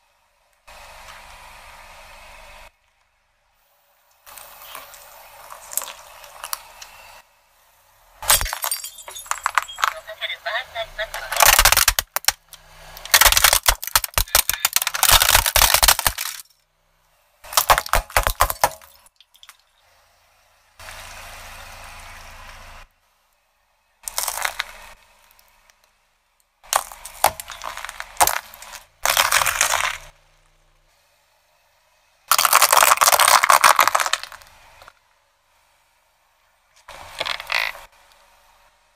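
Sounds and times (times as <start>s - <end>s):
car tyre crushing objects: 4.2s - 7.2s, 8.2s - 10.0s, 11.2s - 16.7s, 17.4s - 19.9s, 23.9s - 30.8s, 32.2s - 35.0s, 36.6s - 38.2s.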